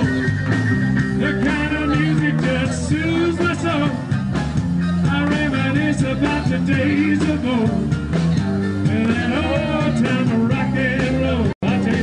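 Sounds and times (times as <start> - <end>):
person singing: 0.0 - 4.1, 4.8 - 8.0, 8.8 - 12.0
bass line: 0.0 - 12.0
rock and roll song: 0.0 - 12.0.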